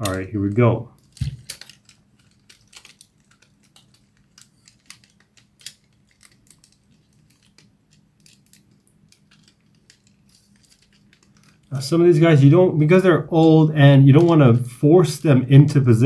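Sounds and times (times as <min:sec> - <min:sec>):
plastic toy parts clicking: 0:00.0 - 0:11.7.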